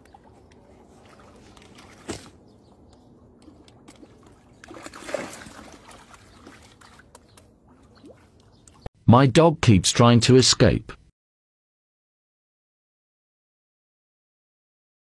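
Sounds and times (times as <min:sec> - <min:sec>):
water splashing and trickling: 0:00.0 - 0:08.9
fish splashing at surface: 0:03.9 - 0:08.5.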